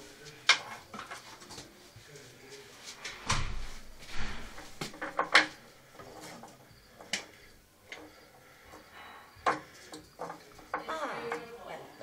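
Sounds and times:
wooden clicks and knocks: 4.8 - 5.6, 9.4 - 11.5.

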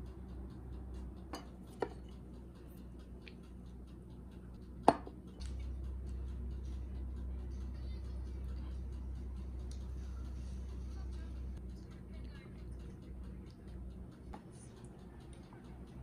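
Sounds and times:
faint regular ticking: 0.0 - 16.0
low hum: 0.0 - 16.0
tableware clinking: 1.3 - 2.1
glass mug knocking on table: 4.9 - 5.1.

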